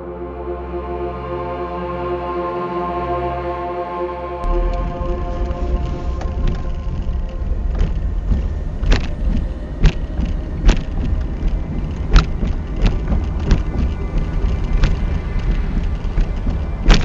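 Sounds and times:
car cabin rumble on gravel: 4.4 - 17.0
sharp knocks from bumps: 7.8 - 17.0.

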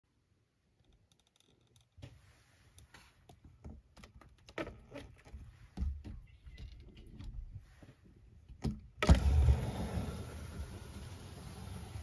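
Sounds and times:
faint clicks and rustling: 0.7 - 8.6.

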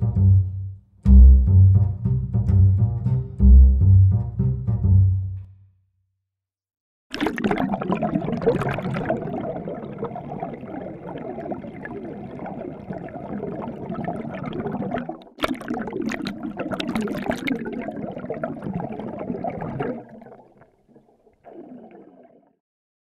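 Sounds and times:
sharp crackling splashes: 7.1 - 22.5
underwater bubbling and gurgling: 7.1 - 22.6.

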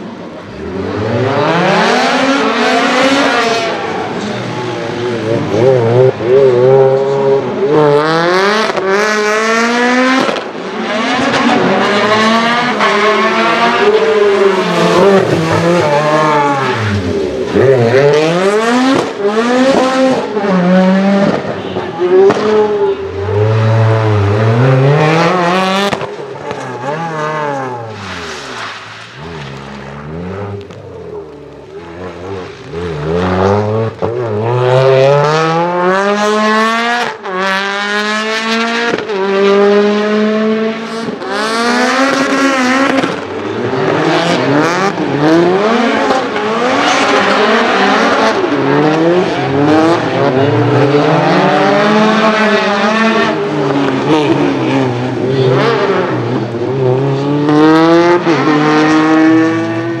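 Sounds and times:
race car engines revving: 0.0 - 60.0.

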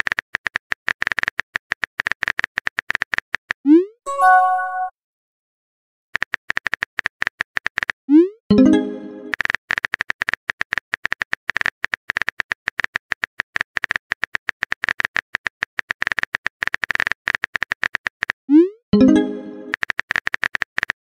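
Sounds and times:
chime-like tone: 4.1 - 4.9.

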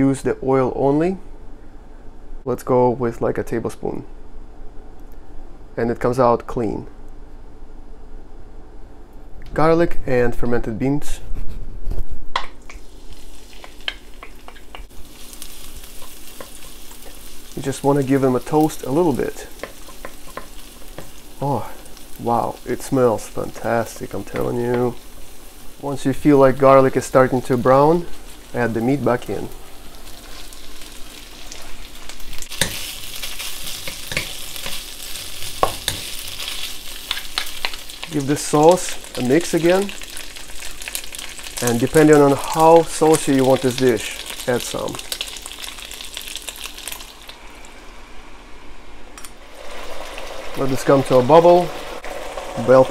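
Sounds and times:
garlic sizzling in hot oil: 12.6 - 48.4, 49.4 - 52.9
spatula ticking while stirring: 19.5 - 21.3.

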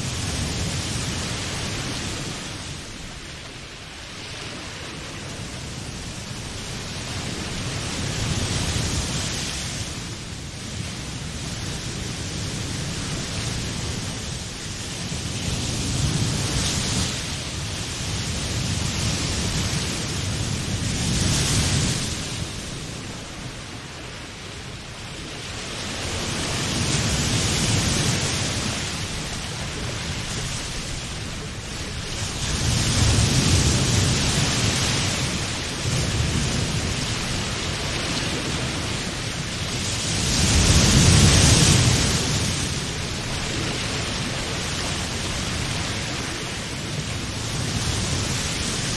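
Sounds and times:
sea waves breaking: 11.0 - 48.9.

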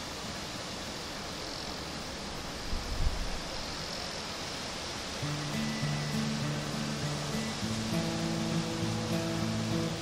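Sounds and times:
outdoor ambient hiss: 0.0 - 10.0
breeze: 3.3 - 10.0.

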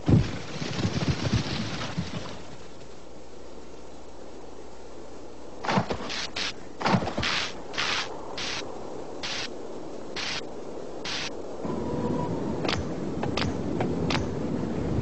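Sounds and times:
short hissing swishes: 7.2 - 8.6, 9.2 - 9.5, 10.2 - 11.3.

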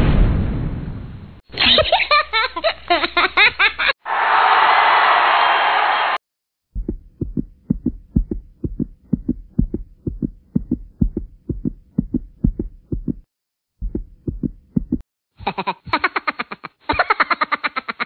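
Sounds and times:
low thumping beat: 6.7 - 15.0.

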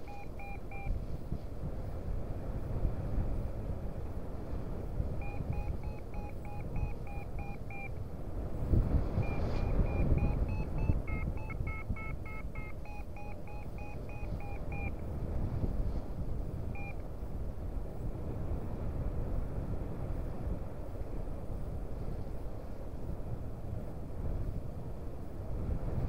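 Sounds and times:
variometer beeping: 0.0 - 1.0, 5.2 - 8.0, 9.2 - 15.1, 16.7 - 17.0
wind on microphone: 0.3 - 24.6.

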